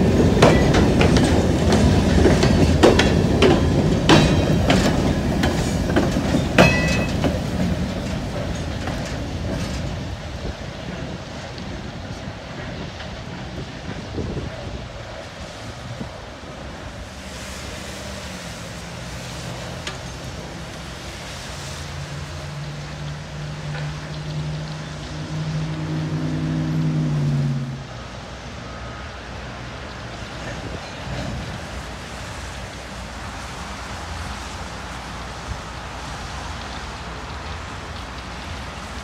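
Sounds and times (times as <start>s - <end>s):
wind noise: 0.0s - 19.6s, 30.0s - 39.0s
road traffic: 0.0s - 39.0s
train cars rolling on track: 0.0s - 39.0s.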